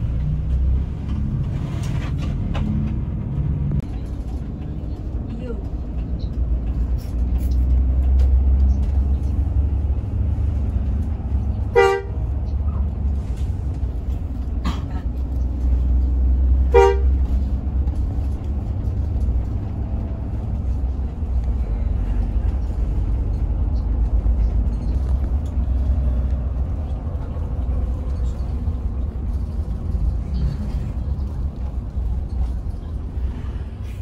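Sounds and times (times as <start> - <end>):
coach engine drone: 0.0 - 34.0
vehicle horn toots: 11.7 - 12.2, 16.7 - 17.4.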